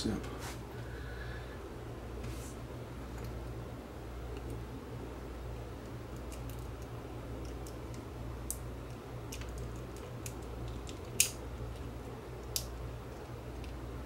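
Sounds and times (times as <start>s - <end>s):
steady low hum: 0.0s - 14.0s
sharp plastic snap: 10.2s - 11.4s.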